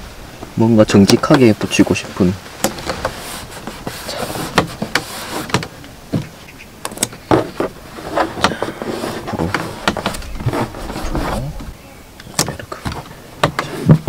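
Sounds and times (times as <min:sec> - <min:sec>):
fingers rubbing on plastic: 0:02.7 - 0:11.8.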